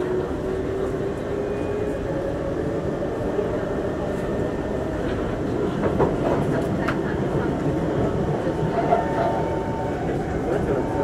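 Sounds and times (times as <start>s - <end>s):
train clatters: 5.0s - 11.0s.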